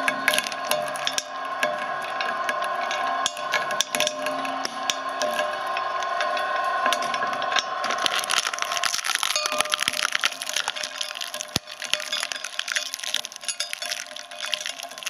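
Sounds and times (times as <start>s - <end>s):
shredder crunching candy: 0.0s - 1.3s, 7.1s - 15.0s.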